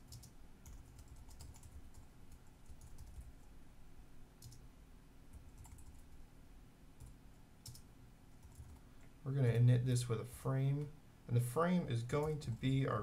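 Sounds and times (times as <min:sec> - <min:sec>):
computer keyboard typing: 0:00.0 - 0:03.5, 0:04.4 - 0:04.6, 0:05.3 - 0:06.1, 0:07.0 - 0:08.8
low steady hum: 0:00.0 - 0:13.0.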